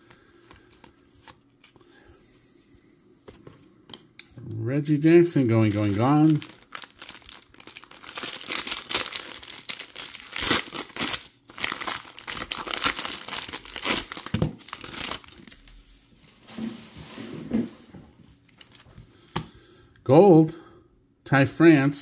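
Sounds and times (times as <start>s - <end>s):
foil wrapper crinkling and tearing: 5.2s - 15.8s.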